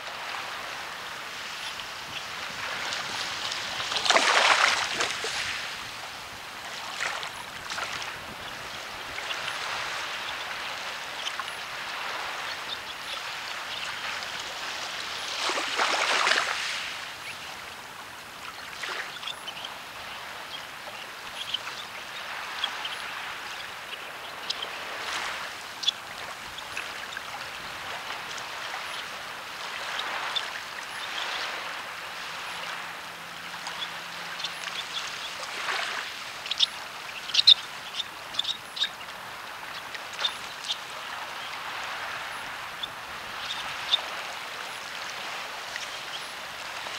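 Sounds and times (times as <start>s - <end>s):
waves on a pebble beach: 0.0s - 46.9s.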